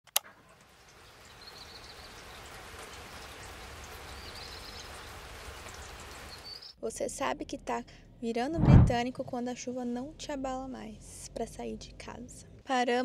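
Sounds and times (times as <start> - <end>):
steady rain falling: 0.2 - 6.7.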